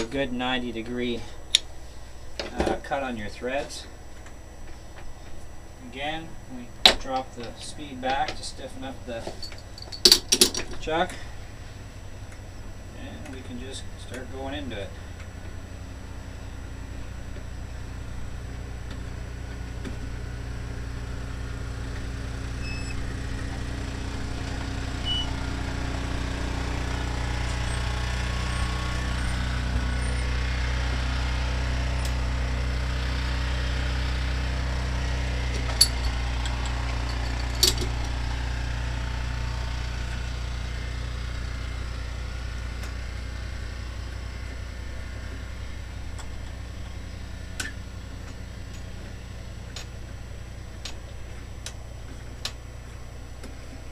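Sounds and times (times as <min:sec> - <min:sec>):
metal lathe running: 0:34.0 - 0:50.6.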